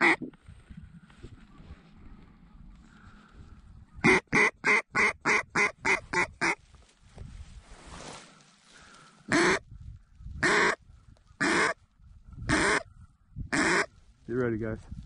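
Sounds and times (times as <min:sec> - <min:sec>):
duck call quacks: 0:00.0 - 0:00.3, 0:04.0 - 0:06.6, 0:09.3 - 0:09.6, 0:10.4 - 0:10.8, 0:11.4 - 0:11.8, 0:12.5 - 0:12.8, 0:13.5 - 0:13.9.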